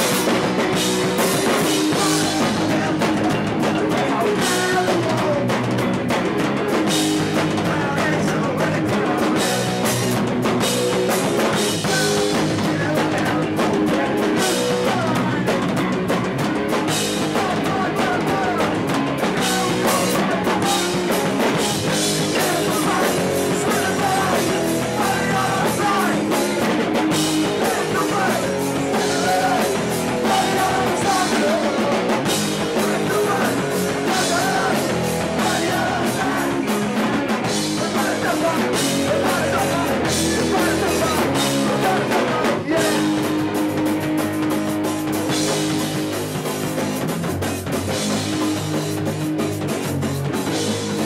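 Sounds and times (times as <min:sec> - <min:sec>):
drum kit: 0:00.0 - 0:51.0
electric guitars: 0:00.0 - 0:51.0
person singing: 0:01.2 - 0:05.8, 0:07.4 - 0:10.0, 0:11.6 - 0:15.8, 0:17.2 - 0:43.5.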